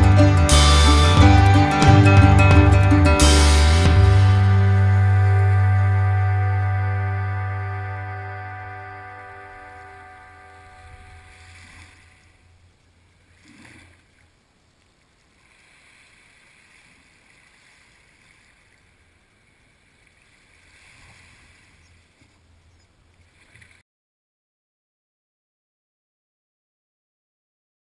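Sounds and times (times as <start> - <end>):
small waves lapping on beach: 9.0 - 23.8.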